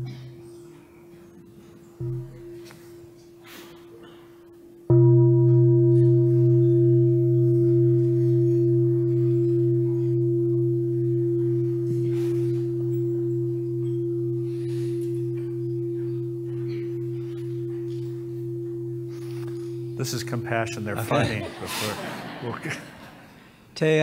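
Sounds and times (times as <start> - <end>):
bowl bell ringing: 0.0 - 22.4.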